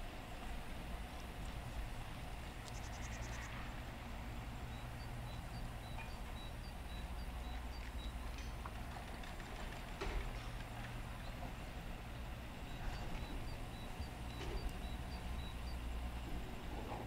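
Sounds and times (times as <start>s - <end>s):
steady low rumble: 0.0s - 9.1s, 9.7s - 17.0s
small bird calling: 2.6s - 3.6s.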